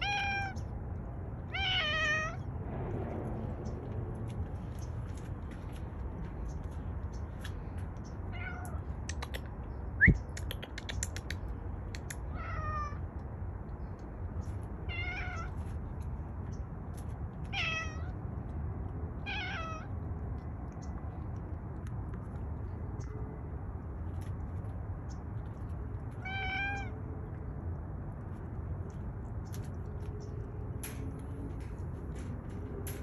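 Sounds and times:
cat meowing: 0.0 - 0.7, 1.5 - 2.5, 8.3 - 8.9, 12.3 - 13.0, 14.8 - 15.6, 17.5 - 18.2, 19.2 - 19.9, 26.2 - 27.0.

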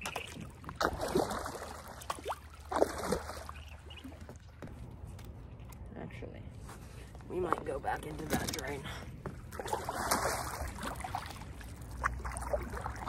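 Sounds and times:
paddle swishing through water: 0.0 - 5.0, 9.1 - 13.0.

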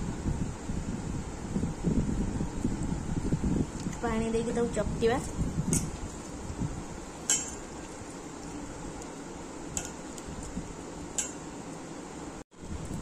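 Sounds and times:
clinks against steel bowl: 7.3 - 7.6.

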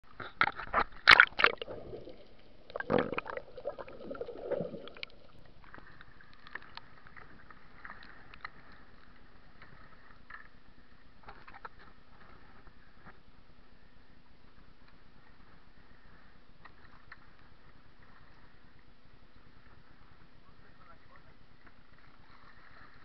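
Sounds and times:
water splashing and gurgling: 0.1 - 8.9
faint steady hiss: 0.1 - 23.0.

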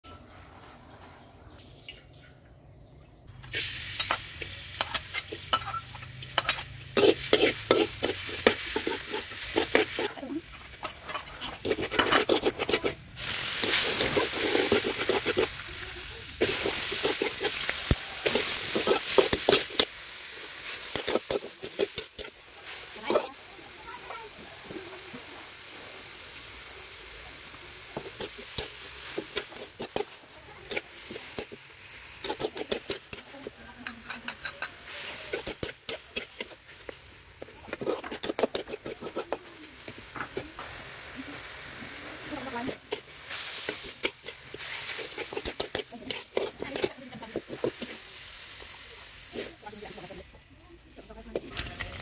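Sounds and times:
metal spatula scraping a wok: 3.4 - 24.1, 27.8 - 48.4
vegetables sizzling in oil: 3.4 - 52.0.

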